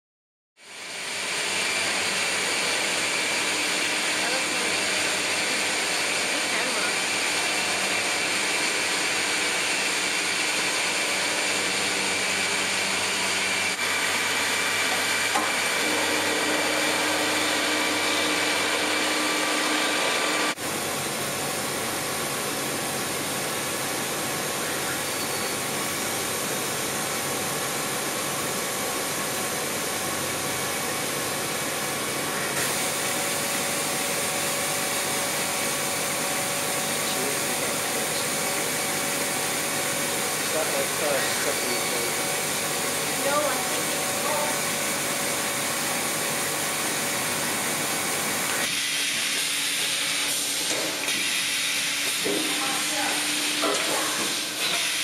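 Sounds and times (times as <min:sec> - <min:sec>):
milling machine spindle whine: 0:00.6 - 0:55.0
laser cutter rushing noise: 0:32.3 - 0:55.0.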